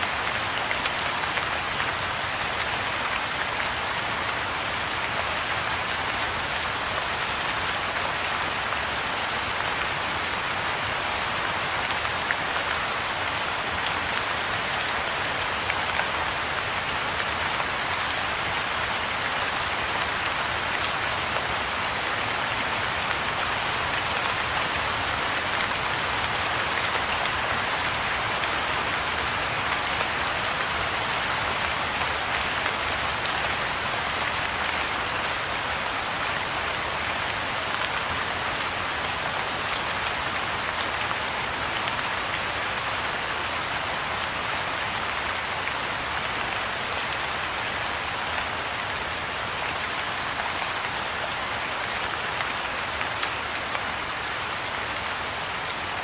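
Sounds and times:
rain falling on pond: 0.0s - 56.0s.

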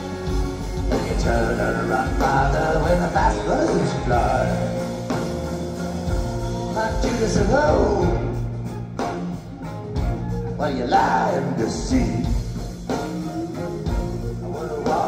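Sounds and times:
live rock band playing: 0.0s - 15.0s
man singing: 0.8s - 5.0s, 6.6s - 8.6s, 10.6s - 12.6s, 14.2s - 15.0s.

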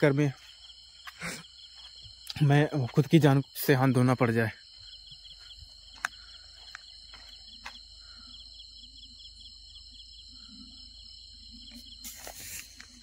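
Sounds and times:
footsteps on dirt path: 0.0s - 3.2s, 4.7s - 8.2s
crickets chirping: 0.0s - 13.0s
brush rustling: 11.7s - 13.0s.

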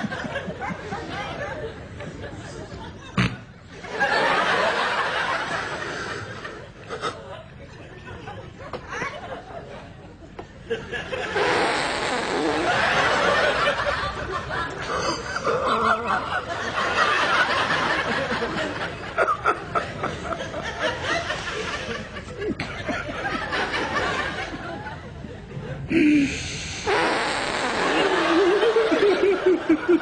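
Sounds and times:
people giggling: 0.0s - 26.2s, 27.0s - 30.0s.

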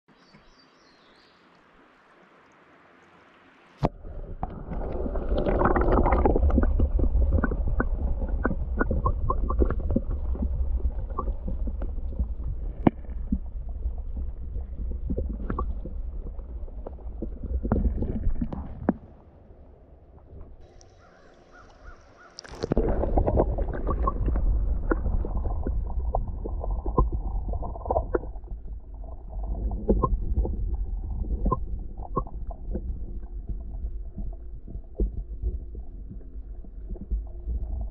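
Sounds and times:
faint hiss: 0.1s - 3.9s
muffled underwater creek flowing: 0.1s - 37.9s.

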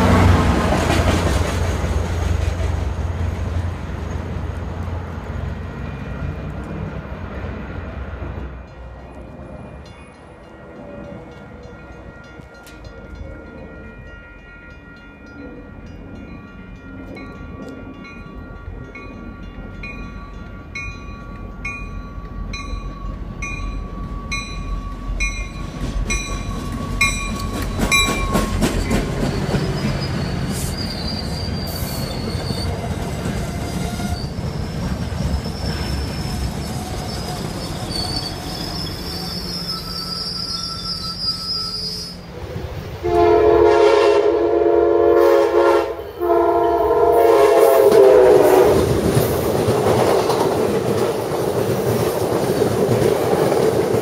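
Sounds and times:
train rolling past: 0.0s - 54.0s
train wheel squeal: 21.8s - 42.4s
locomotive horn blasts: 43.0s - 48.8s.

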